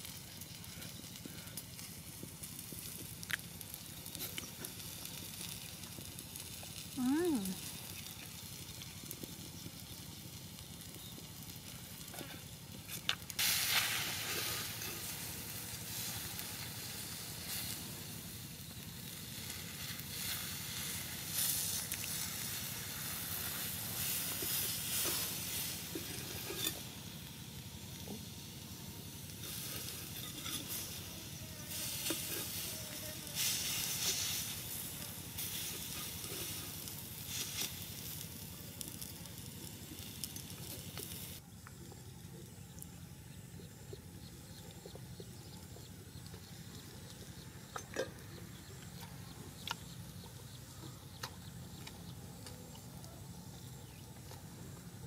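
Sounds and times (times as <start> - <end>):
liver sizzling on hot rock: 0.0 - 41.5.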